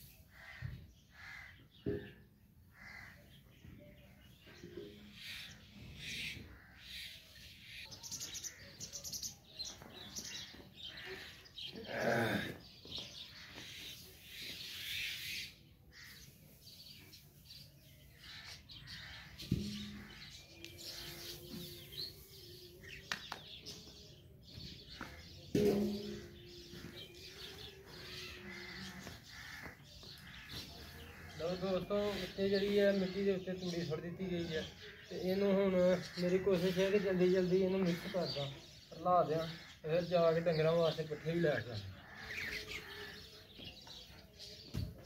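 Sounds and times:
birds chirping: 0:00.0 - 0:45.0
sharp knocks: 0:25.5 - 0:26.4.

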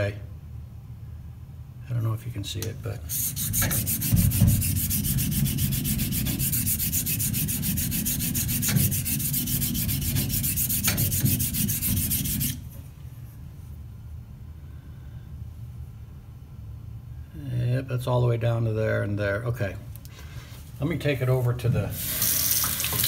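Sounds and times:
razor scraping on diamond plate: 0:03.1 - 0:12.7.

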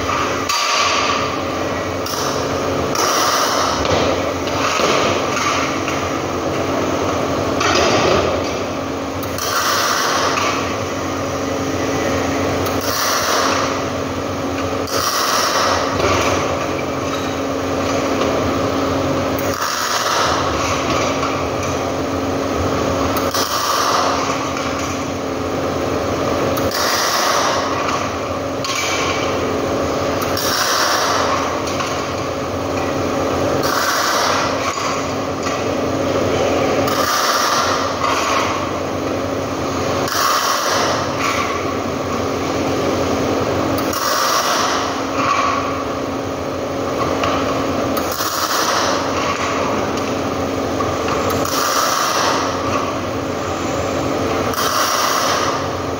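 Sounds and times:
steady machine hum: 0:00.0 - 0:55.9
welding arc hissing: 0:00.0 - 0:55.9.

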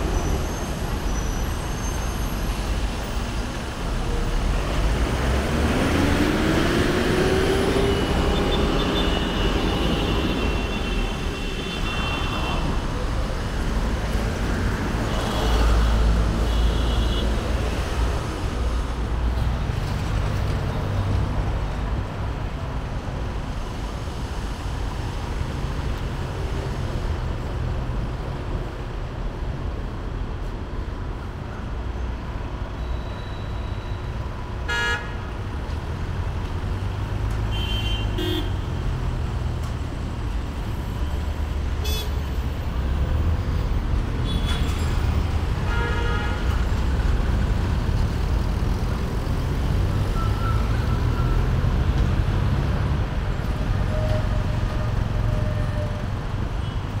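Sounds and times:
traffic rumble: 0:00.0 - 0:57.0
vehicle horns honking: 0:34.7 - 0:35.2, 0:37.5 - 0:38.6, 0:41.8 - 0:42.2.

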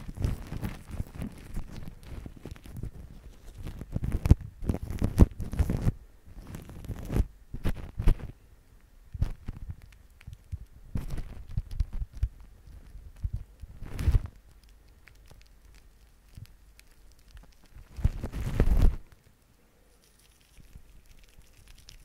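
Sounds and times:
foam squishing and cling film crinkling: 0:00.0 - 0:08.3, 0:13.1 - 0:19.4.

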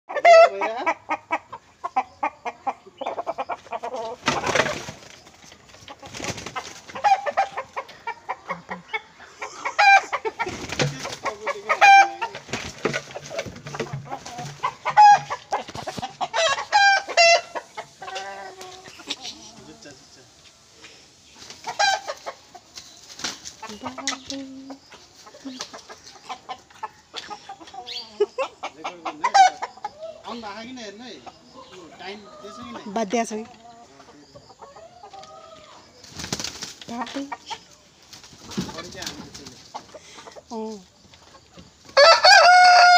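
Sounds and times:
roosters clucking and squawking: 0:00.1 - 0:42.9
wing flapping: 0:04.2 - 0:07.0, 0:10.4 - 0:11.4, 0:22.7 - 0:24.4, 0:36.0 - 0:37.0, 0:38.0 - 0:39.7.

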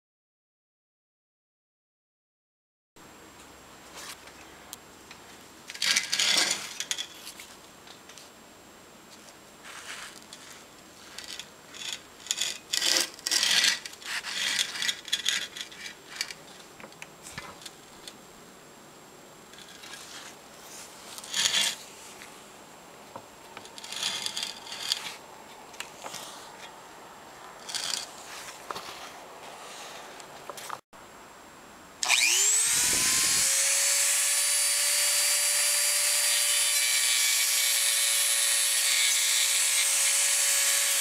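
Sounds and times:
tool scraping metal: 0:05.7 - 0:07.4, 0:09.7 - 0:16.6, 0:19.6 - 0:22.3, 0:23.6 - 0:25.2, 0:27.5 - 0:30.1.

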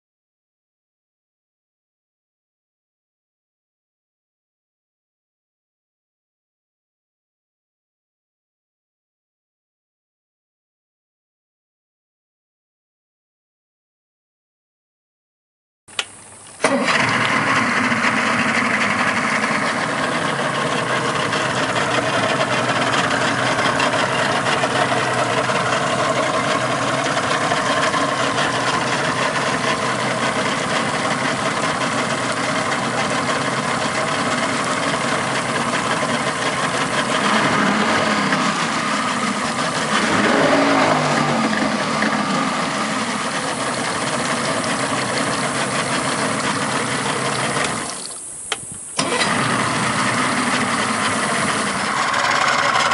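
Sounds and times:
outboard engine idling: 0:15.9 - 0:52.9.

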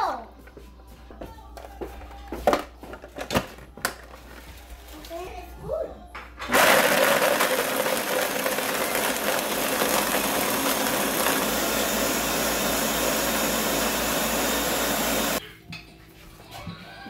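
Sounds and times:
blender blending ice: 0:06.5 - 0:15.4.

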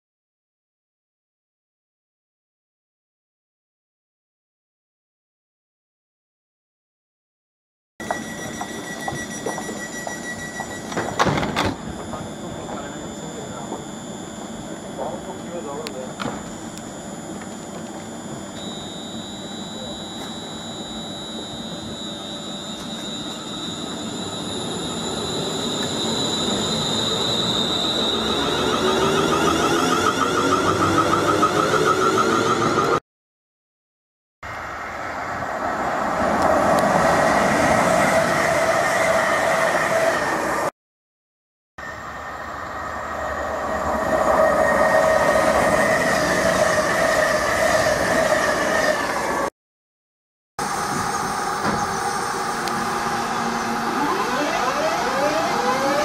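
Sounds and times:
electric train whining: 0:08.0 - 0:33.0, 0:34.5 - 0:40.7, 0:41.8 - 0:49.5, 0:50.6 - 0:56.0
rising train whine: 0:08.0 - 0:33.0, 0:34.5 - 0:40.7, 0:41.8 - 0:49.5, 0:50.6 - 0:56.0
train passing at speed: 0:34.5 - 0:40.7, 0:41.8 - 0:49.5, 0:50.6 - 0:53.9.

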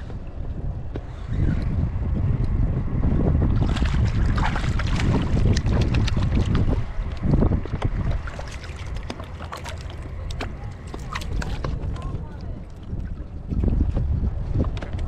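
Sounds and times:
wind buffeting microphone: 0:00.0 - 0:15.0
water slapping kayak hull: 0:03.2 - 0:15.0.

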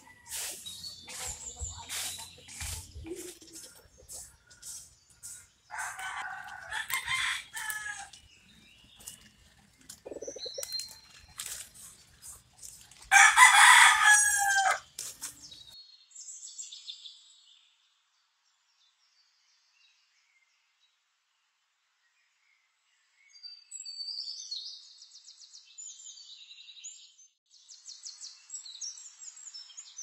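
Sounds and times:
small birds chirping: 0:00.0 - 0:13.2
rooster crowing: 0:05.7 - 0:08.2, 0:13.1 - 0:14.8.

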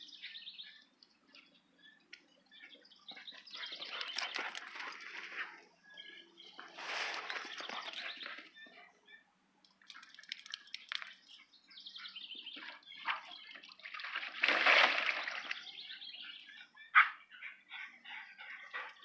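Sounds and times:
dogs scuffling and splashing: 0:03.4 - 0:05.8, 0:06.6 - 0:08.5, 0:09.7 - 0:11.4, 0:12.6 - 0:15.7
dog splashing into pool: 0:13.1 - 0:15.7.

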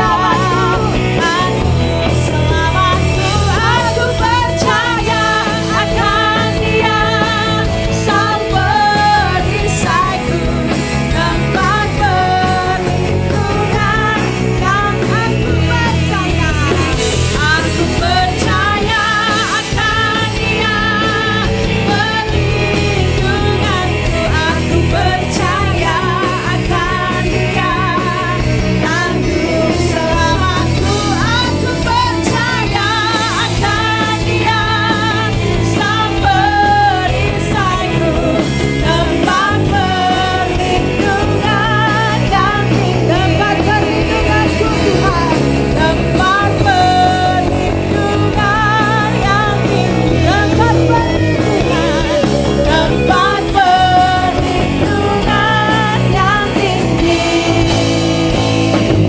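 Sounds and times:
women singing worship song: 0:00.0 - 0:58.9
drums: 0:00.0 - 0:59.0
electric guitar: 0:00.0 - 0:59.0.

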